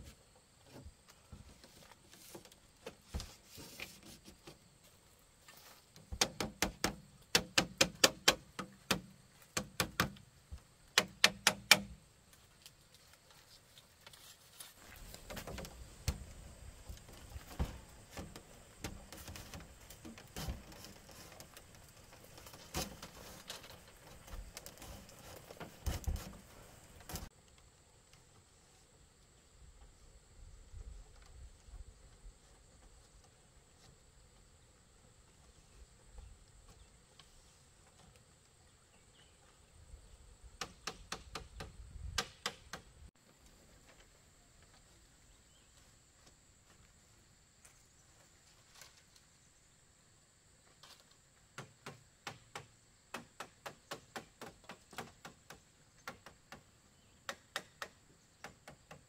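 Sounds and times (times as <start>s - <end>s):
rustling: 0.0s - 6.2s, 12.2s - 27.3s.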